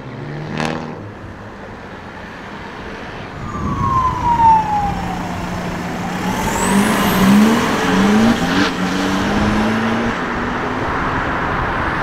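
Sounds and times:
car engine accelerating: 0:03.4 - 0:10.4.

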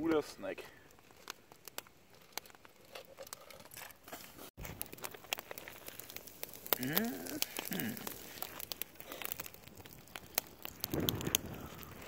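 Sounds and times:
campfire crackling and popping: 0:00.0 - 0:12.0
voice making gliding sounds: 0:06.8 - 0:08.1.

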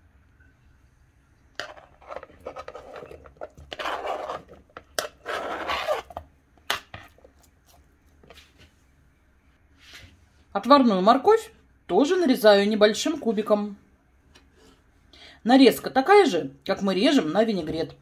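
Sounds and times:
knife scraping cutting board: 0:01.6 - 0:07.3.

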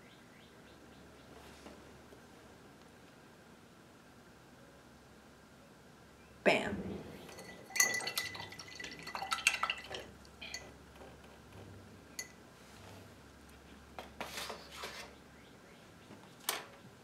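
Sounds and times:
paintbrush clinking against glass jar: 0:07.2 - 0:10.8, 0:12.1 - 0:12.4.

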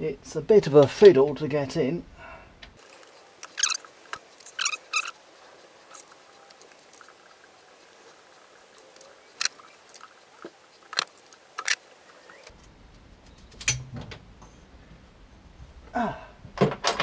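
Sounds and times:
metal parts clicking and knocking: 0:16.6 - 0:17.0.

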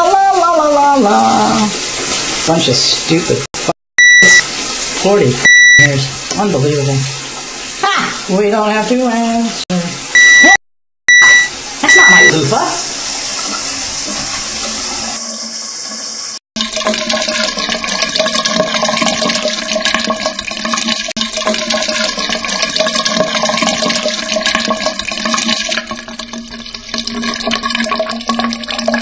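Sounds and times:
shower water spraying: 0:00.1 - 0:03.3, 0:04.4 - 0:10.1, 0:11.6 - 0:16.4.

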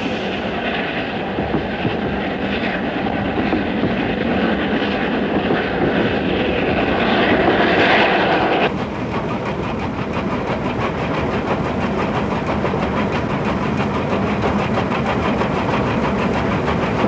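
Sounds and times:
steam locomotive rumble and clatter: 0:00.0 - 0:17.0.

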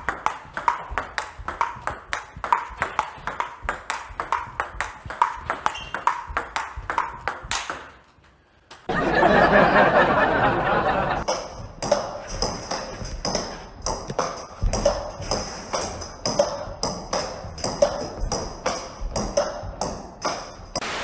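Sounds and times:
table tennis ball clicking: 0:00.0 - 0:08.0.

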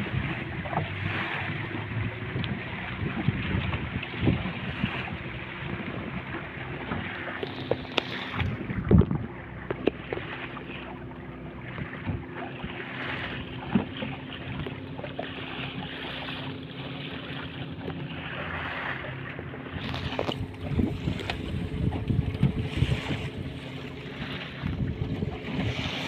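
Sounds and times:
wind noise: 0:00.0 - 0:06.3, 0:08.0 - 0:09.4, 0:19.8 - 0:26.0
boat engine running: 0:00.0 - 0:26.0
water rushing along hull: 0:00.0 - 0:26.0.

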